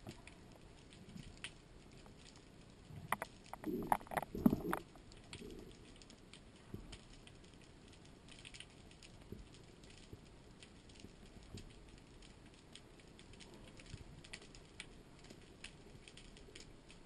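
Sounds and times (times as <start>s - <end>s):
faint underwater clicks and crackle: 0.0s - 17.0s
underwater knocks and thumps: 3.0s - 5.0s.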